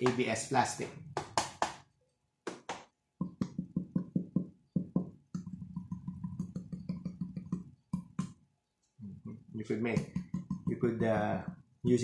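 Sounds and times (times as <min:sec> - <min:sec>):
fingers drumming on hollow plastic: 0:02.5 - 0:08.4, 0:09.9 - 0:11.8.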